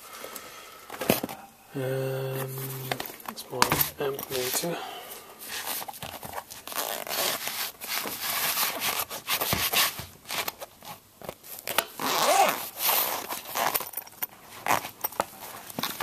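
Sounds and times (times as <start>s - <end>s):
zip being pulled open: 6.6s - 7.5s, 12.0s - 13.8s.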